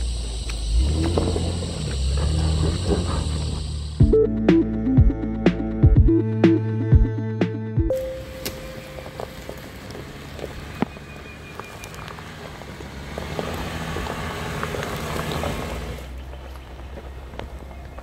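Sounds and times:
tyres crunching over gravel: 0.0 - 4.0, 7.9 - 18.0
low engine hum: 0.0 - 18.0.

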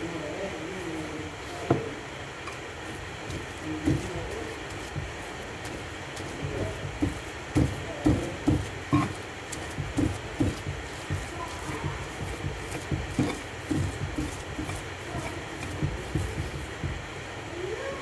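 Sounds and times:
pestle scraping potato: 0.8 - 17.1
pestle thudding in mortar: 1.4 - 17.1.

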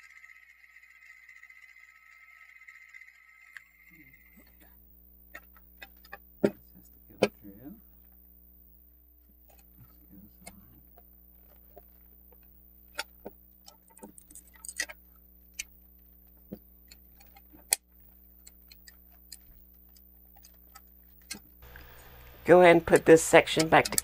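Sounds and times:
plastic toy parts clicking: 23.5 - 24.0.

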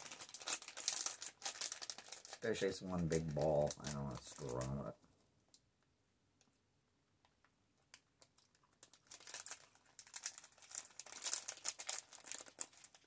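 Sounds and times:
snack wrapper crinkling and tearing: 0.0 - 4.9, 8.0 - 13.0.

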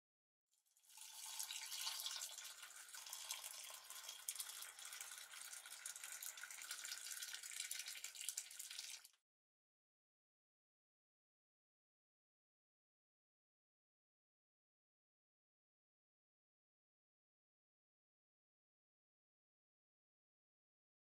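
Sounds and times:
water pouring into a mug: 0.8 - 9.2.

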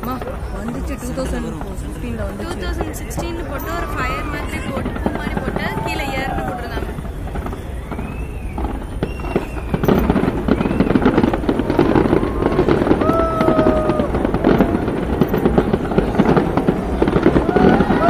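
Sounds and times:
fireworks exploding: 0.0 - 18.0.

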